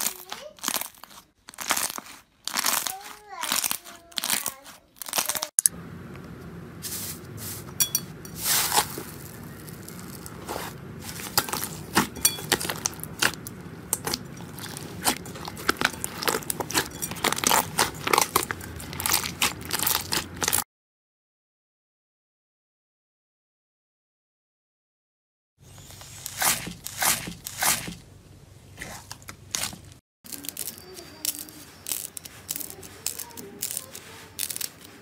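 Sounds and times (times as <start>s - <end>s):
slime popping and crackling: 0.0s - 5.7s, 11.0s - 20.6s, 28.8s - 34.9s.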